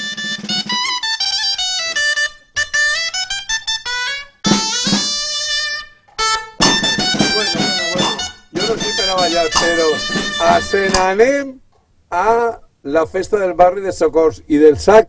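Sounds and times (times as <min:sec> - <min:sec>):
shawm playing a folk tune: 0:00.0 - 0:11.4
drum: 0:04.4 - 0:05.6, 0:06.2 - 0:11.3.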